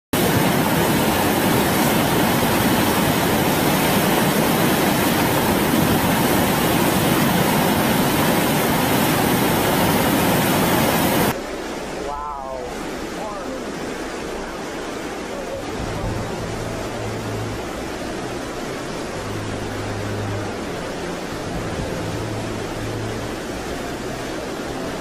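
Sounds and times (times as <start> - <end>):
loud rushing noise: 15.6 - 25.0.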